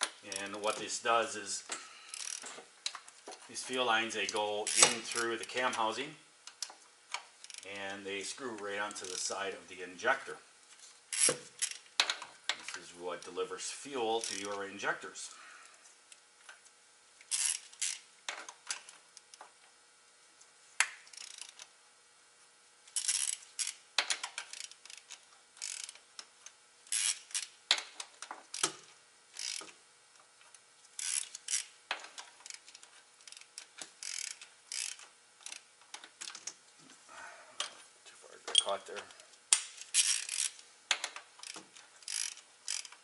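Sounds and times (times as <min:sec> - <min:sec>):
hand ratchet clicking: 0:02.1 - 0:03.0, 0:04.2 - 0:05.8, 0:06.5 - 0:07.7, 0:08.8 - 0:09.4, 0:11.1 - 0:12.8, 0:14.2 - 0:14.6, 0:17.2 - 0:19.3, 0:20.8 - 0:21.7, 0:22.9 - 0:29.8, 0:30.9 - 0:36.6, 0:38.5 - 0:43.0.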